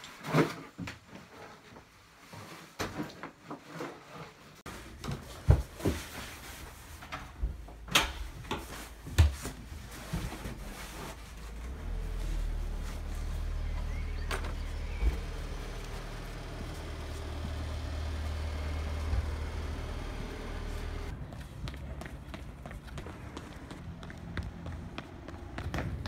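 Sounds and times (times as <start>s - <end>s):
low steady rumble: 9.6s - 22.0s.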